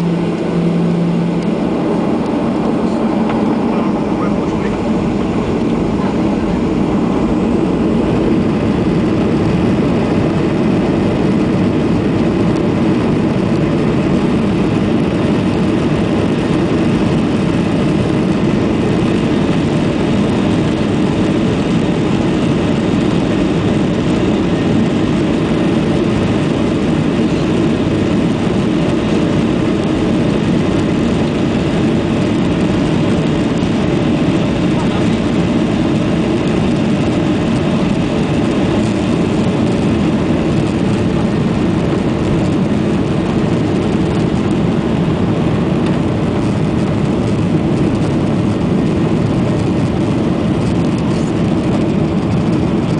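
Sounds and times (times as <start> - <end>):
jet engines in cabin: 0.0 - 52.9.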